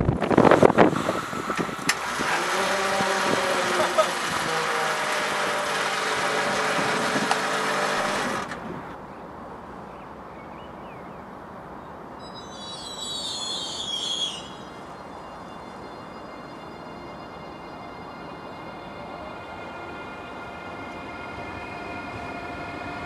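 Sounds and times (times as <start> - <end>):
loud steady drone: 0.0 - 8.6, 12.9 - 23.0
electric train humming: 0.0 - 9.0, 12.2 - 23.0
high train squeal: 12.2 - 23.0.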